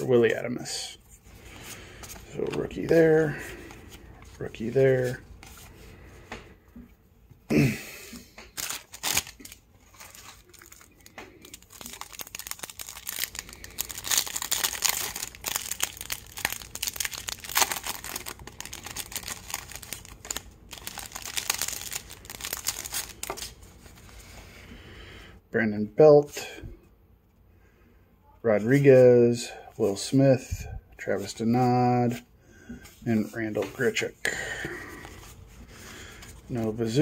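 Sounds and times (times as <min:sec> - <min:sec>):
cellophane wrapper crinkling: 0:08.5 - 0:24.0.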